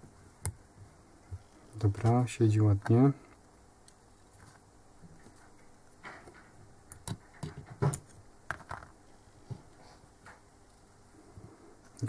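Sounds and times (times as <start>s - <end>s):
small clicks and knocks: 3.9s - 9.0s.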